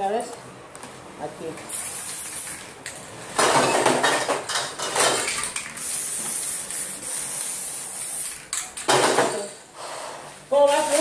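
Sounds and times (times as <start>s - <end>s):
spray paint hissing: 1.7s - 2.7s, 5.6s - 8.6s.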